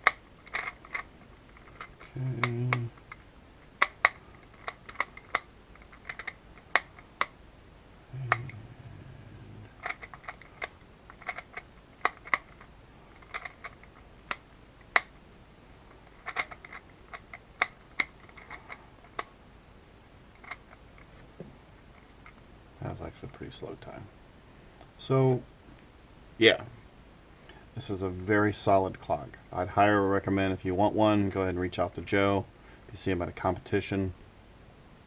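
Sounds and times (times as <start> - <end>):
puzzle pins clicking: 0.0 - 7.4, 9.7 - 15.1, 15.9 - 19.3, 20.4 - 21.2
short low hum: 8.0 - 9.8.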